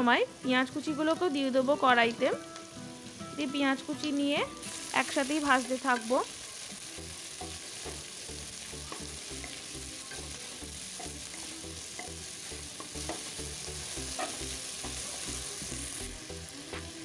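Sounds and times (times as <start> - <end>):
vegetables sizzling in oil: 0.0 - 17.0
spatula clicking on pan: 11.0 - 12.2.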